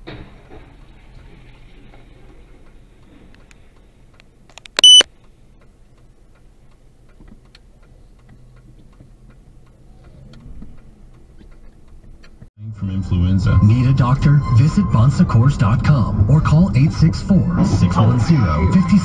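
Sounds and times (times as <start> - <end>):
faint clicking: 2.6 - 12.5
high-pitched electronic beep: 4.8 - 5.0
low vehicle rumble: 5.2 - 19.0.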